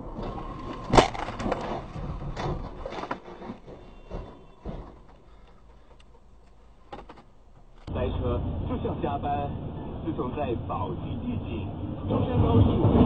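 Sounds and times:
clattering knocks and rattles: 0.0 - 7.9.

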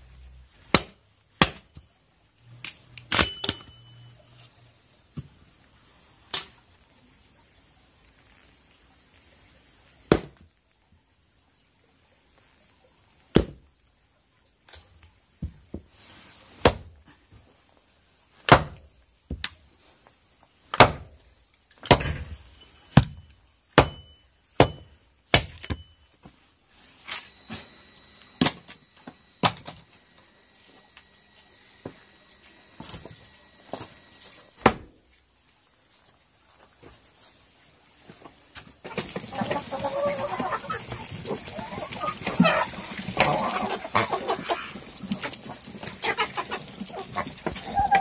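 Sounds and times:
axe chopping firewood: 0.7 - 1.9, 10.1 - 10.4, 16.6 - 16.9, 18.4 - 19.6, 20.7 - 22.4, 23.0 - 25.8, 28.4 - 28.7, 29.4 - 29.8, 34.6 - 35.0.

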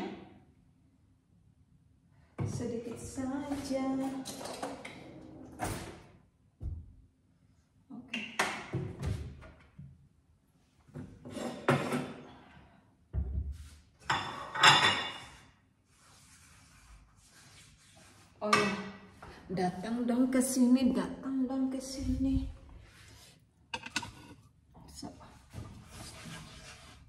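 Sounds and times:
cabinet opening: 4.3 - 6.1
dishes clattering: 14.0 - 15.4, 23.8 - 24.4.

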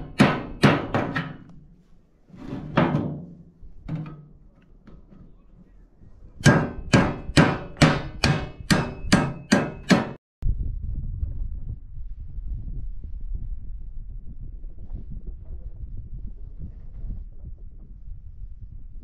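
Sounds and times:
wind rumble on microphone: 10.4 - 19.0.

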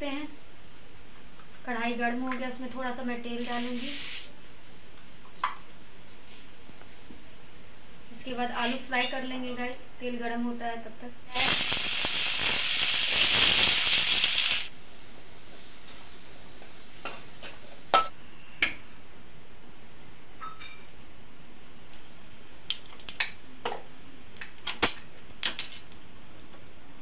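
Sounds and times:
potatoes sizzling in hot oil: 11.3 - 14.7
oil clicks and pops: 22.7 - 23.4.

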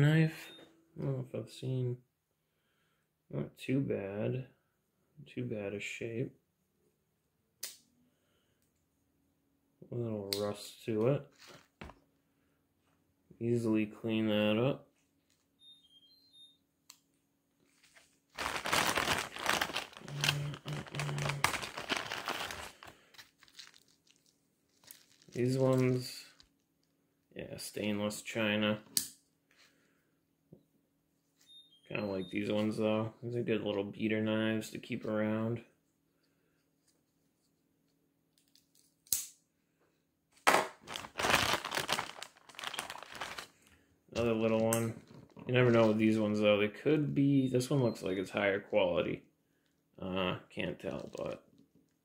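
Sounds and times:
plastic bag crinkling: 17.7 - 26.6, 40.7 - 43.7
knives rummaged in bag: 18.4 - 26.0, 40.8 - 43.5.

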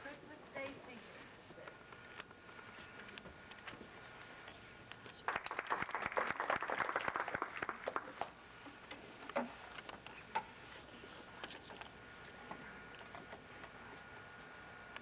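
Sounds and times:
small audience applause: 5.2 - 8.4.

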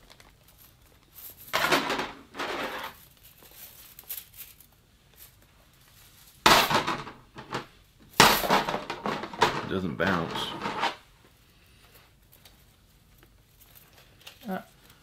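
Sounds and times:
metal rings clinking and rattling: 0.4 - 5.4.

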